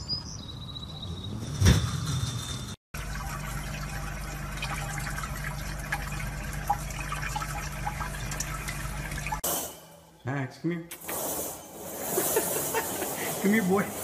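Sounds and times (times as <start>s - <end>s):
tap water running into sink: 3.0s - 9.4s.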